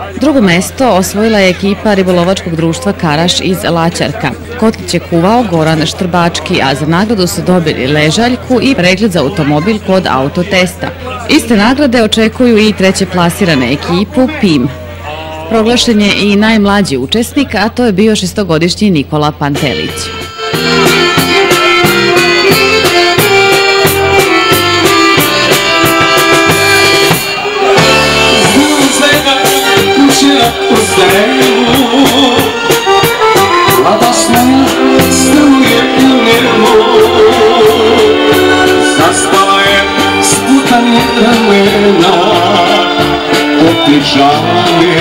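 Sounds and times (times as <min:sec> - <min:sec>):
accordion-led folk band: 0:00.0 - 0:18.2, 0:19.2 - 0:45.0
man singing: 0:27.2 - 0:45.0.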